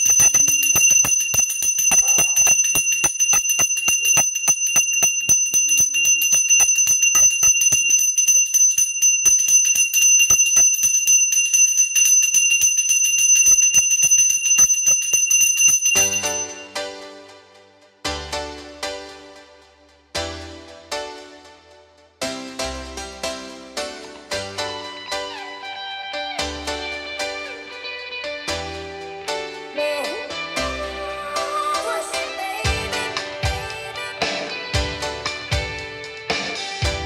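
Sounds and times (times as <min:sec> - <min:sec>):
hand bell ringing: 0:00.0 - 0:16.8
sustained high ringing: 0:00.0 - 0:16.8.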